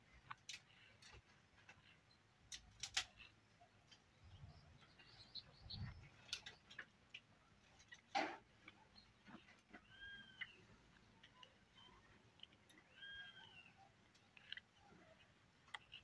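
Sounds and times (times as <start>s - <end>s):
dry sticks clicking and snapping: 0.3s - 1.9s, 2.5s - 4.0s, 6.2s - 8.8s.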